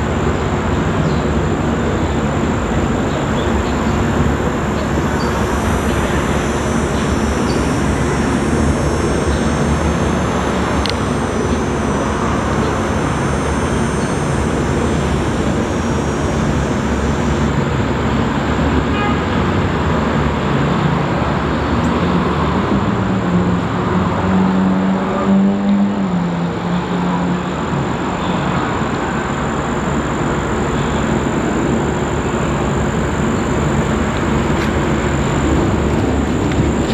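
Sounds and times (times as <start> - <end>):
distant helicopter rotor beat: 0.0 - 18.9, 27.6 - 36.9.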